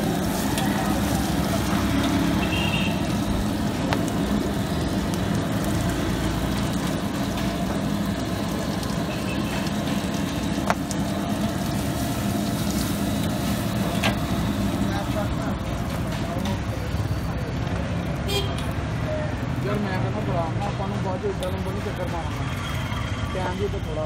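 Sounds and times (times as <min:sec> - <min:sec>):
patties sizzling on griddle: 0:00.0 - 0:24.0.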